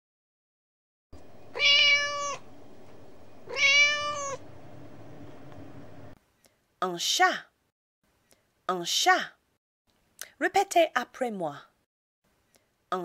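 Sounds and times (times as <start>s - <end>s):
cat meowing: 1.5s - 2.5s, 3.5s - 4.4s.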